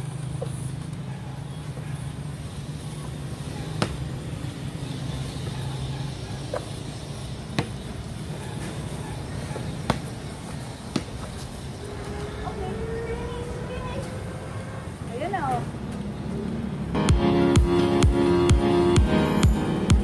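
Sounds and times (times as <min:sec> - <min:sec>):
basketball bouncing on concrete: 0:03.7 - 0:04.3, 0:07.4 - 0:07.9, 0:10.8 - 0:11.4.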